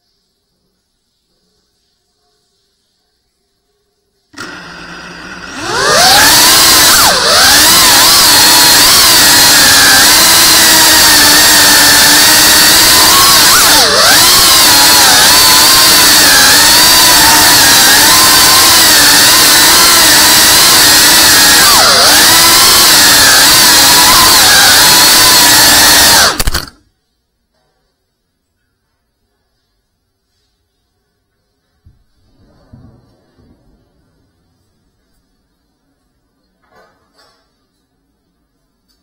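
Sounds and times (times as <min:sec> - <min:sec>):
drone motors whining: 0:05.5 - 0:26.8.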